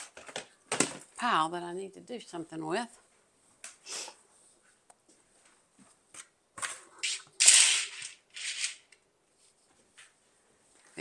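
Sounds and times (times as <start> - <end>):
decorative items clattering: 6.2 - 9.0.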